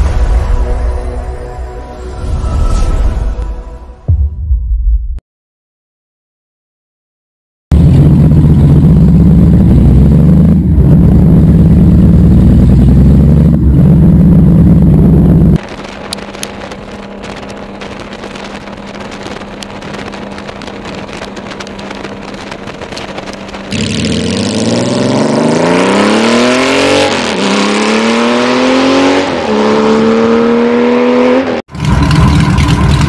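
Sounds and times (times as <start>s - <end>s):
motorcycle engine running loud: 7.7s - 26.0s, 31.7s - 33.0s
motorcycle cruising drone: 7.7s - 33.0s
wind buffeting microphone: 14.8s - 23.7s.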